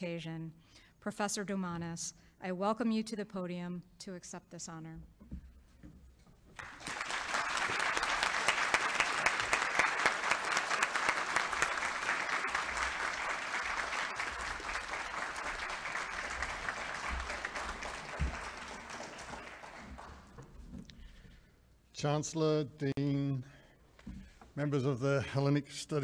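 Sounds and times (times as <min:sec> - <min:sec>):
audience applause: 0:06.6 - 0:20.6.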